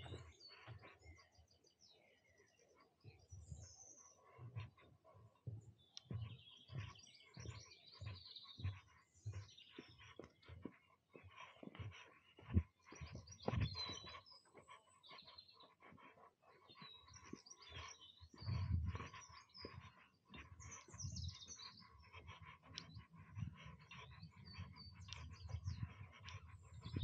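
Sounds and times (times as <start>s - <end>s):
small birds singing: 0.0s - 27.0s
footsteps on wooden boards: 4.4s - 14.8s.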